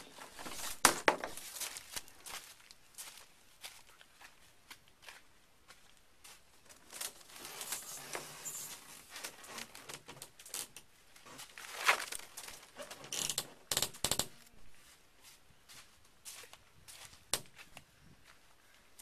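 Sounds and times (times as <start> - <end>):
plastic tarp rustling: 0.0 - 2.0, 6.7 - 10.2, 11.2 - 13.1
rustling and scraping of sheet: 0.0 - 2.0, 6.8 - 10.0, 11.2 - 13.1.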